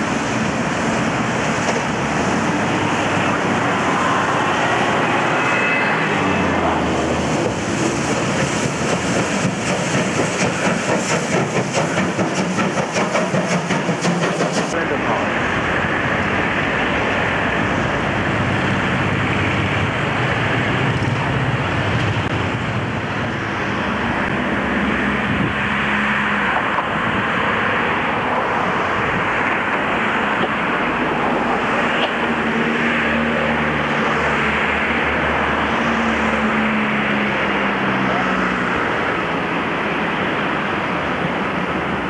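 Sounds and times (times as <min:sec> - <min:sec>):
even rushing noise: 0:00.0 - 0:42.0.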